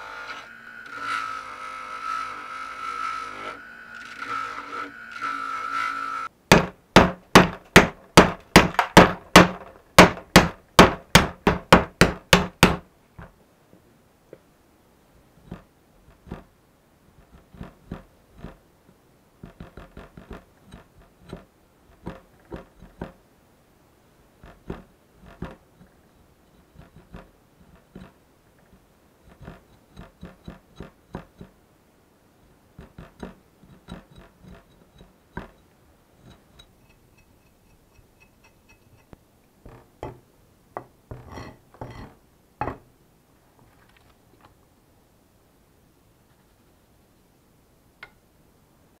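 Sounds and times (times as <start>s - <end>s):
heavy chops into wood: 6.5s - 12.8s.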